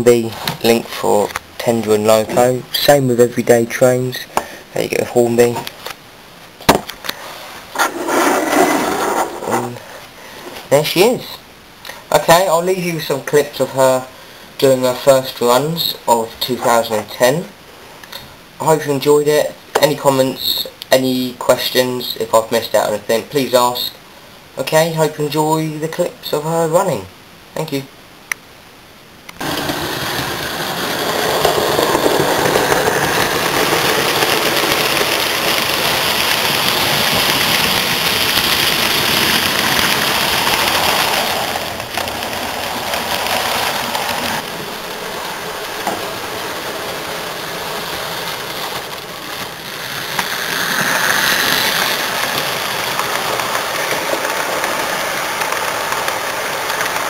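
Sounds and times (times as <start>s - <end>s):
model train motor whirring: 29.4s - 57.0s.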